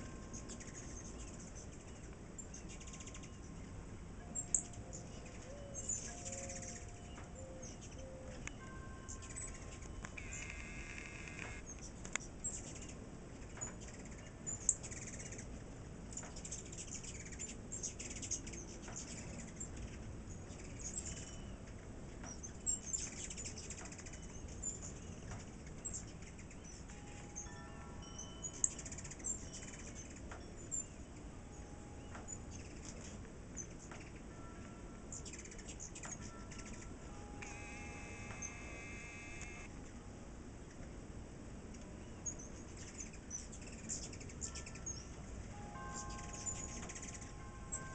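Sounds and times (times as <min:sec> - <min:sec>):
wind chimes ringing: 0:00.0 - 0:10.8, 0:20.8 - 0:21.6, 0:26.7 - 0:33.2, 0:34.2 - 0:39.7, 0:44.3 - 0:47.9
hummingbirds chipping and twittering: 0:00.0 - 0:39.8, 0:41.6 - 0:47.9.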